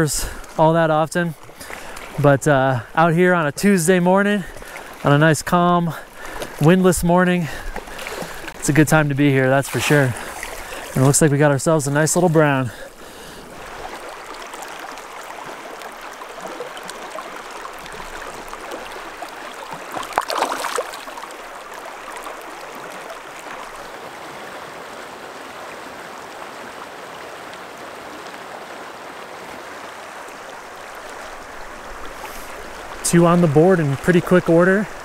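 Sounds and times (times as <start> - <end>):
river water babbling over rocks: 0.0 - 35.0
water splash: 7.5 - 23.7.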